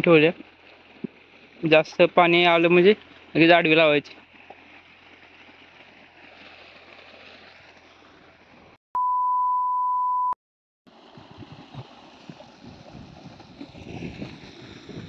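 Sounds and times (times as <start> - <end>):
steady test-tone beep: 9.0 - 10.4.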